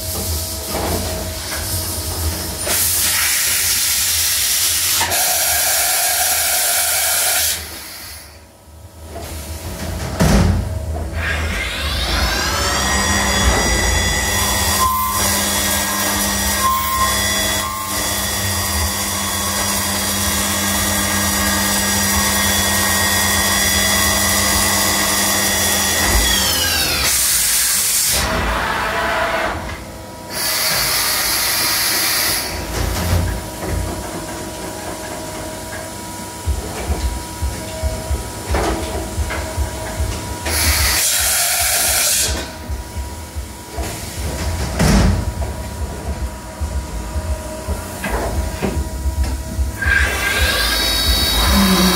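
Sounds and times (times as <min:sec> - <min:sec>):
low machine running noise: 0:07.6 - 0:51.9
lathe spindle whine: 0:11.3 - 0:27.4, 0:48.6 - 0:51.9.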